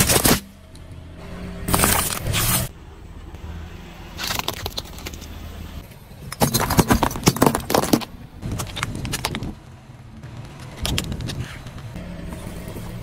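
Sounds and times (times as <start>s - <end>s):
plastic cracking under car tyre: 4.2s - 5.3s, 6.3s - 9.6s.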